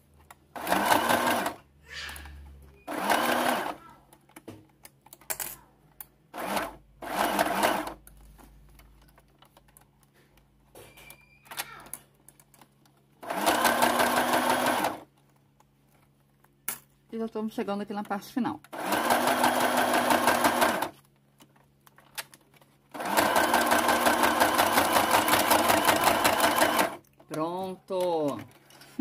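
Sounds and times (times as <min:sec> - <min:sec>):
sewing machine stitching: 0:00.5 - 0:01.6, 0:02.8 - 0:03.8, 0:06.3 - 0:08.0, 0:13.2 - 0:15.1, 0:18.7 - 0:21.0, 0:22.9 - 0:27.0.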